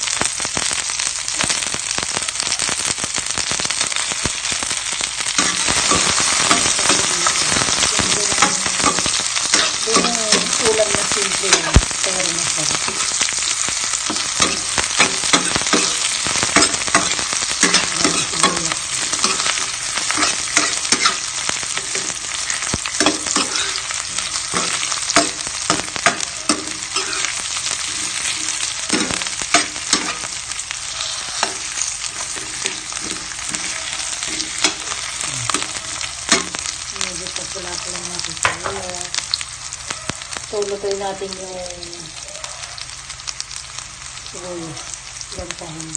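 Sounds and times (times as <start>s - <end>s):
onions sizzling in oil: 0.0s - 45.9s
spatula scraping pan: 12.7s - 36.6s.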